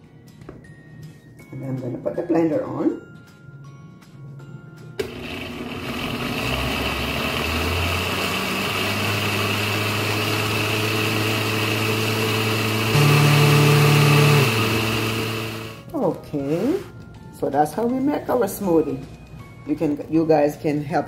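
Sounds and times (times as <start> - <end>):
blender motor running: 5.0 - 15.9.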